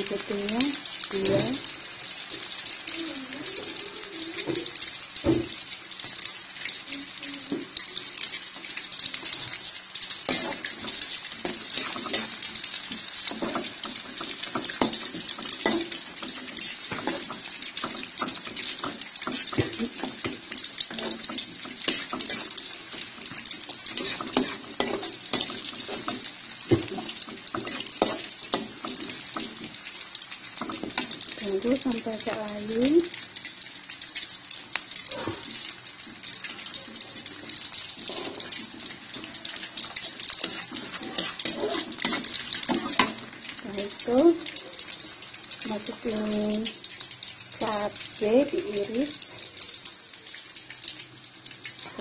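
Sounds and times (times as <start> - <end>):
aromatics sizzling in hot oil: 0.0 - 52.0
spatula scraping metal pan: 10.3 - 29.8, 37.6 - 43.2.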